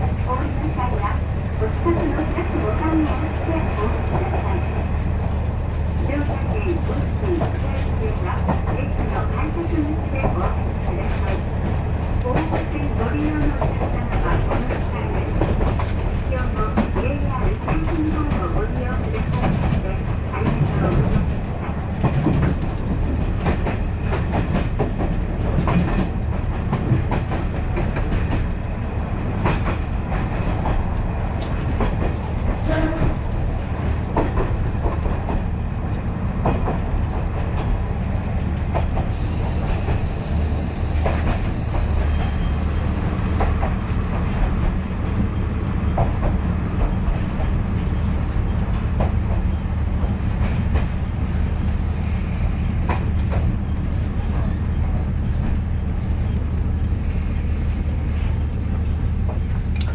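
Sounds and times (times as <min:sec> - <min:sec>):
train engine rumble: 0:00.0 - 0:59.9
high metallic squeal: 0:39.1 - 0:43.4.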